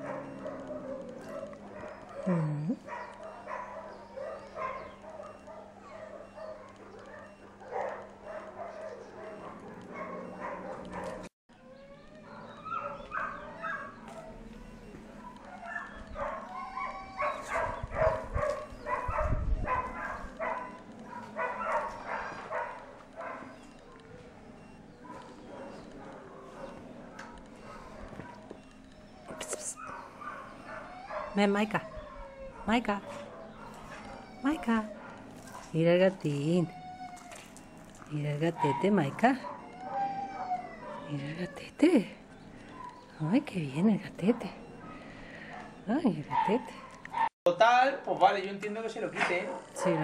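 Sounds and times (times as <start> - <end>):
dog whining: 0.0 - 43.2
dogs barking and yipping: 0.0 - 47.4, 48.9 - 50.0.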